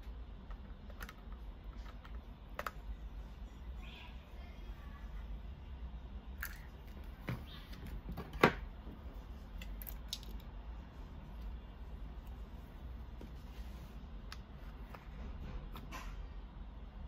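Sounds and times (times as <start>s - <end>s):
low steady hum: 0.0s - 17.0s
plastic parts clicking and tapping: 0.4s - 2.8s.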